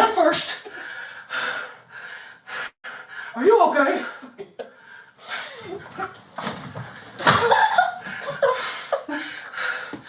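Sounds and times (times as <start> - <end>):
people gasping and grunting: 4.1 - 10.0.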